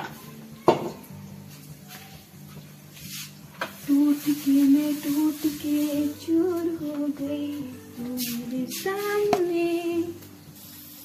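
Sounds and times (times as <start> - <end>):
woman singing slow melody: 3.8 - 10.5.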